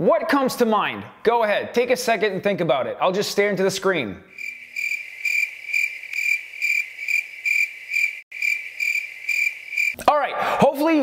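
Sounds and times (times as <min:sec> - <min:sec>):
cricket chirping: 0:04.3 - 0:10.0.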